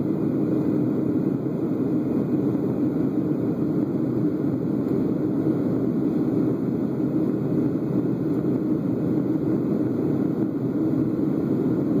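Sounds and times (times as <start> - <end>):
airliner cabin engine drone: 0.0 - 12.0.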